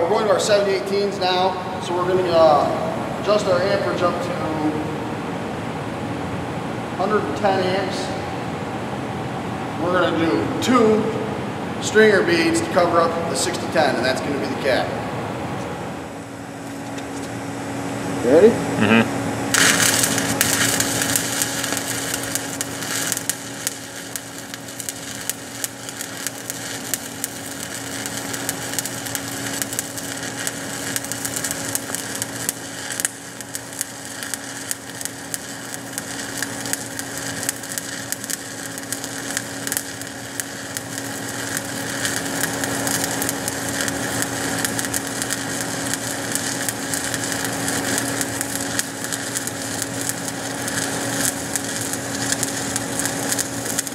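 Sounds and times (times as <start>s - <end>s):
welding arc crackling: 19.4s - 53.9s.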